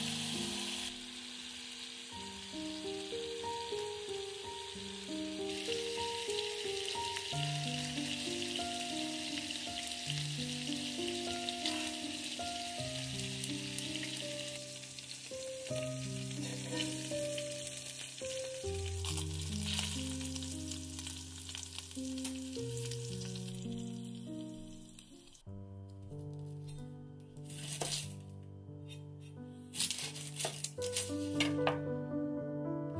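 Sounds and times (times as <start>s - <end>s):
patties sizzling in oil: 0.0s - 25.5s
background music held notes: 0.0s - 32.9s.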